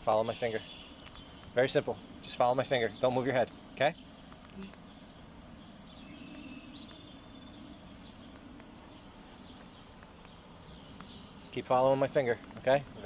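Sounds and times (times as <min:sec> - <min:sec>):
faint bird chirps: 0:00.0 - 0:12.3
faint low background noise: 0:00.0 - 0:13.0.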